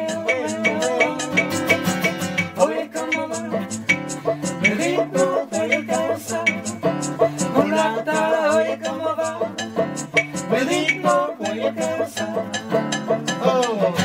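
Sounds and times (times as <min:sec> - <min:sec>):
plucked guitar rhythm: 0:00.0 - 0:14.0.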